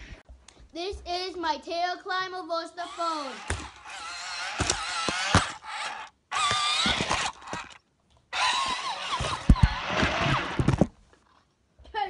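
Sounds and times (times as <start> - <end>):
toy wheels clattering: 2.8 - 7.8
electric motors whining: 2.8 - 10.7.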